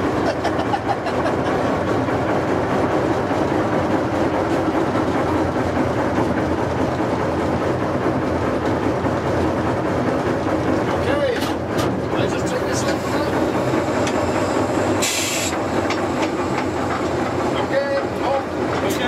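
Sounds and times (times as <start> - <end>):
diesel locomotive engine rumble: 0.0 - 19.0
locomotive rattling on track: 0.0 - 19.0.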